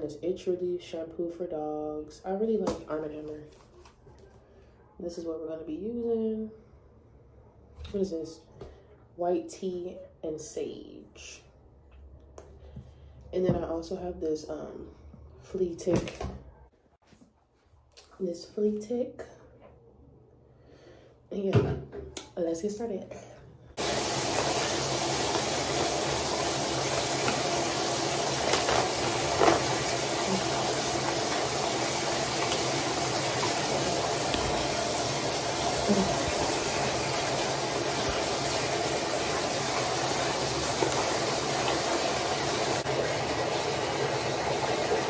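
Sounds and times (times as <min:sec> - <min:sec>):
water running into bathtub: 0:23.8 - 0:45.0.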